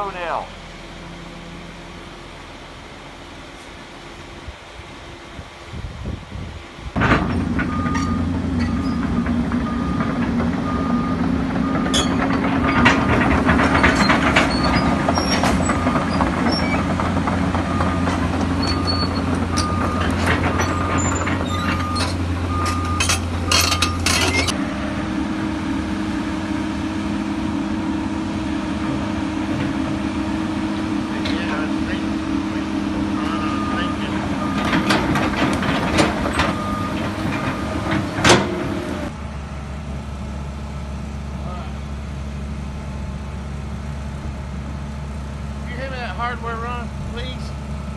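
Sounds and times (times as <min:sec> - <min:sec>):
diesel engine running: 0:00.0 - 0:47.9
steel tracks clanking: 0:06.7 - 0:39.2
warning alarm beeping: 0:07.7 - 0:09.0, 0:09.6 - 0:12.2, 0:17.7 - 0:24.1, 0:33.1 - 0:34.9.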